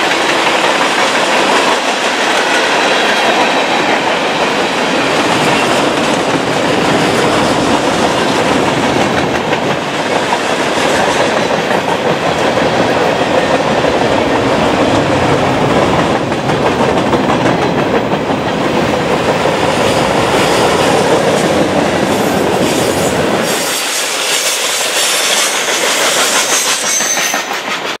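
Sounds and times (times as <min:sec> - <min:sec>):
deep train rumble: 0:00.0 - 0:27.9
train wheels on rails: 0:00.0 - 0:28.0
train hiss: 0:19.8 - 0:28.0.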